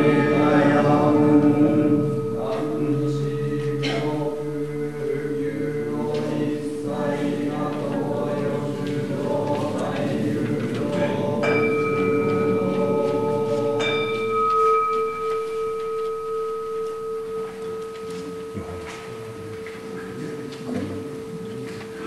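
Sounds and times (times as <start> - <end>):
singing bowl ringing: 0.0 - 7.6, 11.3 - 20.1
group chanting a prayer: 0.0 - 14.4.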